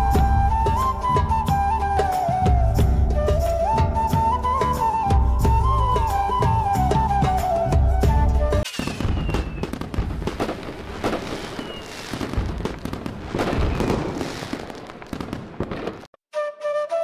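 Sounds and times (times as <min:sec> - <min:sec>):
flute melody: 0:00.0 - 0:09.8, 0:16.3 - 0:17.0
fireworks whistling: 0:08.4 - 0:16.5
fireworks crackling and popping: 0:08.5 - 0:16.2.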